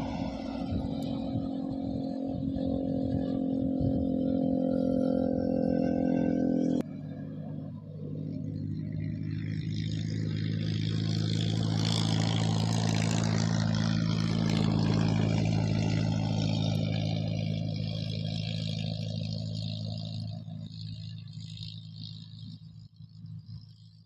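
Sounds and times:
rushing noise: 0.0s - 3.2s
motor engine humming: 0.0s - 24.0s.

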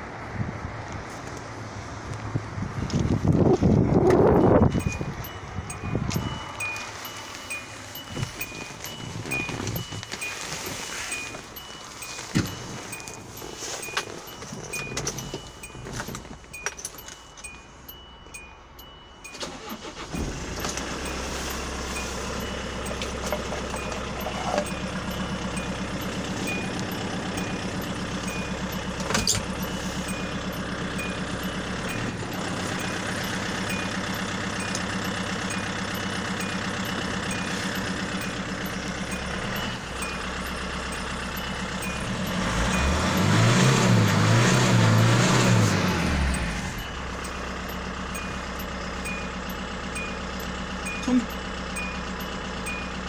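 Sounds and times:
diesel engine starting and idling: 0.0s - 53.0s
engine revving: 19.2s - 52.8s.

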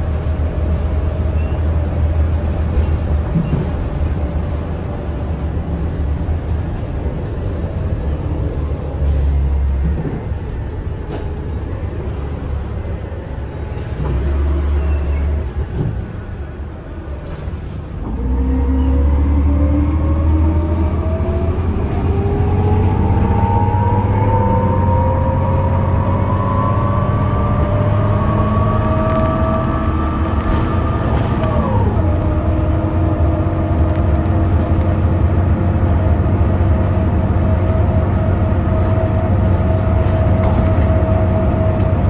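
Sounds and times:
bus engine rumble: 0.0s - 42.0s
drivetrain whine rising in pitch: 18.5s - 32.4s.

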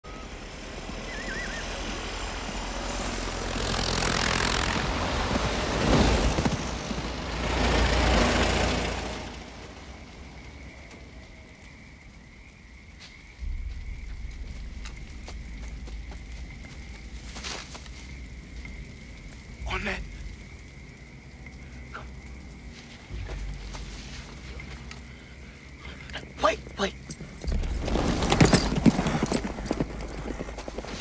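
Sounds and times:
old cars and trucks driving past: 0.0s - 11.8s, 13.5s - 31.0s
low rumble: 13.3s - 28.8s.

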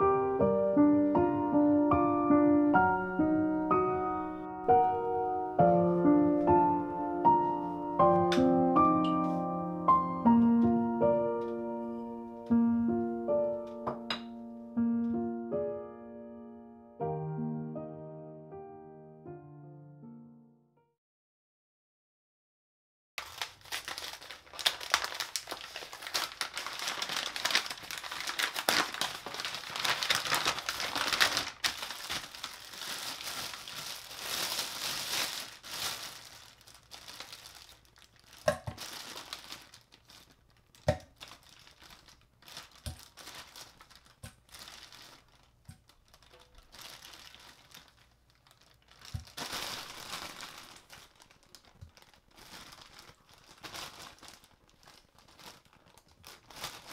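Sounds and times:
plastic and paper crinkling: 23.2s - 56.9s.

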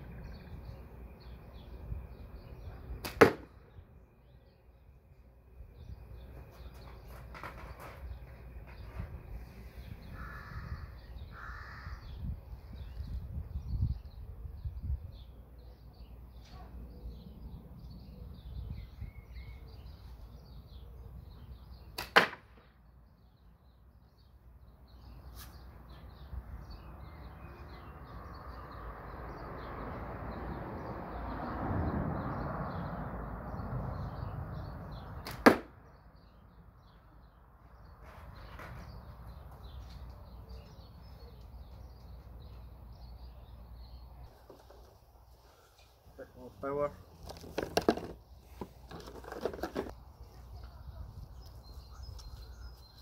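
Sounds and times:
catapult shot crack: 3.0s - 3.6s, 22.0s - 22.6s, 35.2s - 35.8s.

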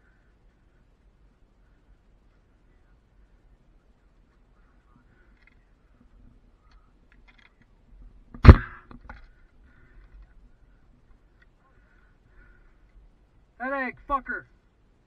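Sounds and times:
light clicks and rattles: 5.2s - 11.6s.

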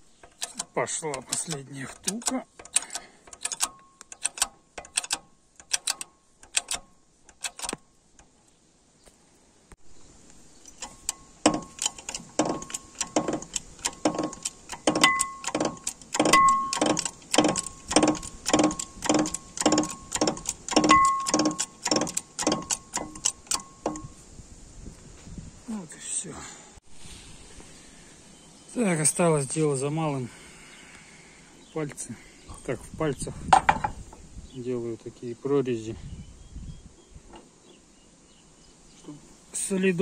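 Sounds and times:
hydraulic jack pump clanking: 0.2s - 7.8s, 10.7s - 24.1s
short metallic ring: 14.2s - 21.8s.

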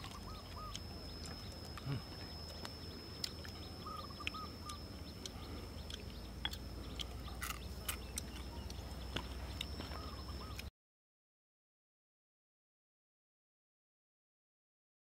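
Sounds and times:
bird chirping: 0.0s - 10.7s
steady high whine: 0.0s - 10.7s.

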